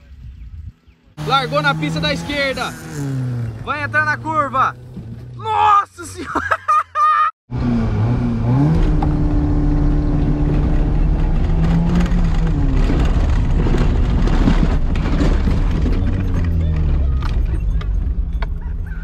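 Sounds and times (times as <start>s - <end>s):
car engine from inside cabin: 7.5s - 13.5s.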